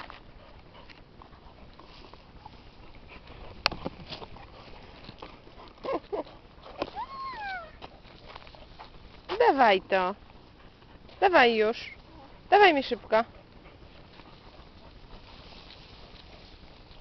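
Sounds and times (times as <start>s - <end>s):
dog whining: 6.8s - 7.8s.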